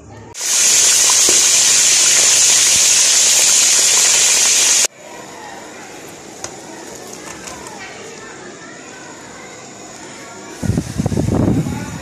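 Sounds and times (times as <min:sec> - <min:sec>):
chicken sizzling in hot oil: 0:00.4 - 0:04.9.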